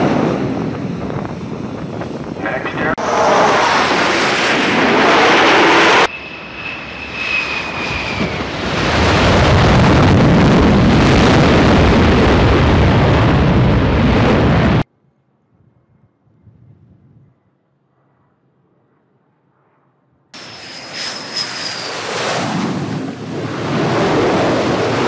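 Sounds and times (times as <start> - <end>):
jet engines roaring: 0.0 - 14.9, 17.8 - 25.0
faint high whine: 15.0 - 22.4.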